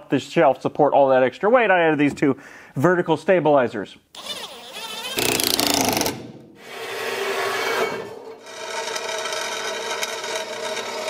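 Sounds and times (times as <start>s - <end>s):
tool rasping: 4.2s - 11.0s.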